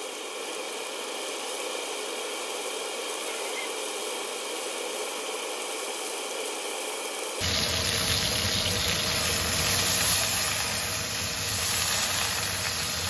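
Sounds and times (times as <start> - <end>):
pork sizzling in hot oil: 7.4 - 13.0.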